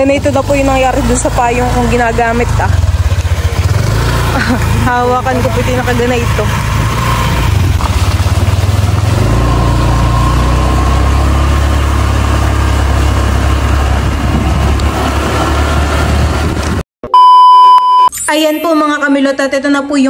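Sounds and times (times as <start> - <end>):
motorcycle engine rumble: 0.0 - 16.8
wind rushing on microphone: 13.7 - 16.8.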